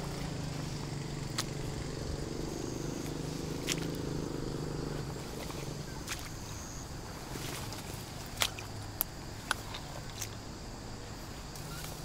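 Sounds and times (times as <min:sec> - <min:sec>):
low steady hum: 0:00.0 - 0:12.0
twigs snapping: 0:03.6 - 0:04.0
footsteps through brush: 0:05.1 - 0:10.4, 0:11.1 - 0:12.0.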